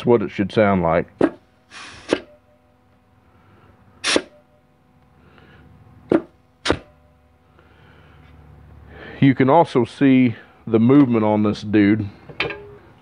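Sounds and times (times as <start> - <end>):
compressed air blasts: 1.2 - 2.3, 4.0 - 4.4, 6.1 - 6.9.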